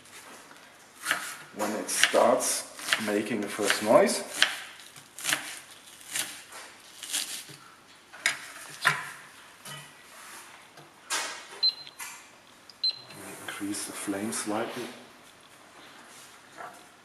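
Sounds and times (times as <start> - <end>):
knife chopping on wooden board: 2.8 - 6.4.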